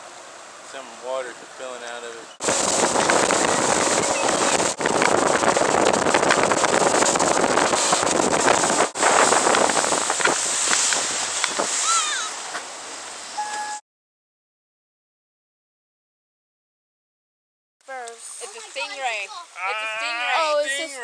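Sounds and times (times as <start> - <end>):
water rushing past boat: 0.0 - 13.8
wind buffeting microphone: 2.4 - 12.4
short high chirps: 13.4 - 13.8.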